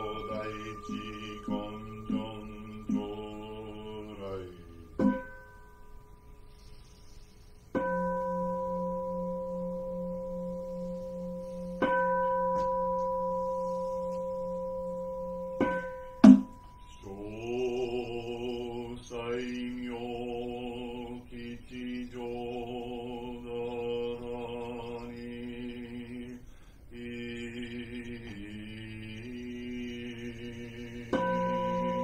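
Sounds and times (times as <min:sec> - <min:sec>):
bowl bell ringing: 0:00.0 - 0:06.6, 0:07.7 - 0:18.2, 0:31.1 - 0:32.0
sharp knock: 0:15.6 - 0:16.6.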